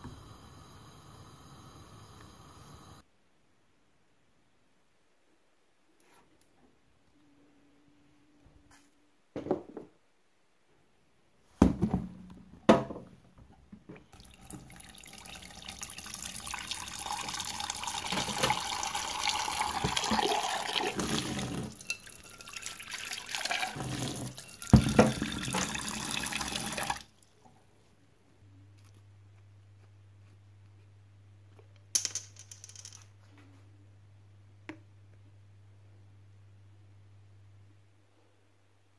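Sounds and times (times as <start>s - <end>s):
tap running into saucepan: 17.2s - 22.5s, 23.5s - 27.0s.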